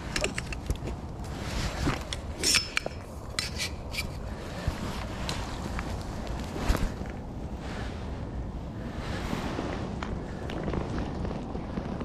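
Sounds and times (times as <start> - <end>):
low background rush: 0.0 - 12.0.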